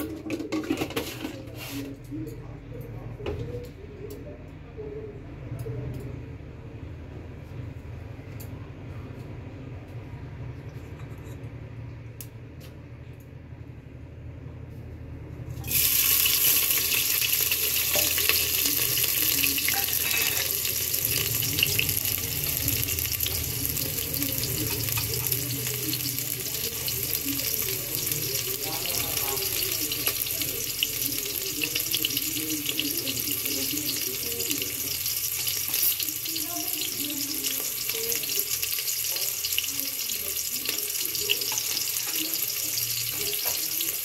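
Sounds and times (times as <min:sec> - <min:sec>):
onions sizzling in hot oil: 0:15.6 - 0:44.0.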